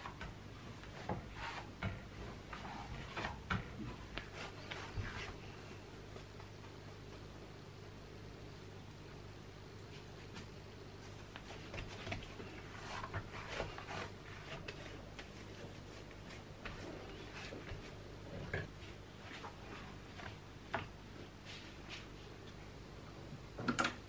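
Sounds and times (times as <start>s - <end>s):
dough slapping kneaded by hand: 0.0s - 7.2s, 10.0s - 21.0s
steady low hum: 0.0s - 24.0s.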